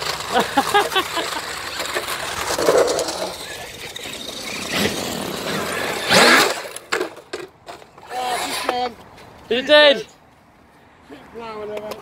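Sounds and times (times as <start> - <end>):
tyre noise on concrete: 0.0 - 12.0.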